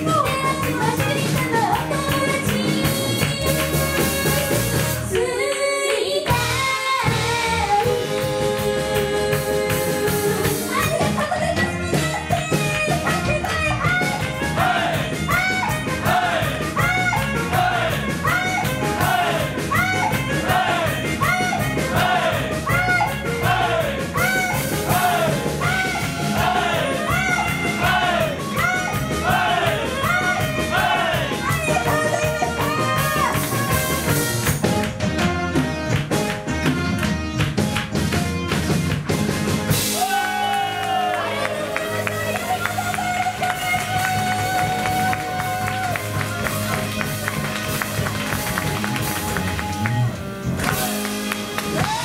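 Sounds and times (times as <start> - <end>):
women singing: 0.0 - 11.8
live band playing upbeat song: 0.0 - 52.0.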